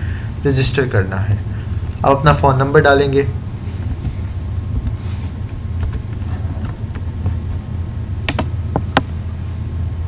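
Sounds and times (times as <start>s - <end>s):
steady low hum: 0.0s - 10.0s
keyboard key clicks: 8.3s - 9.1s.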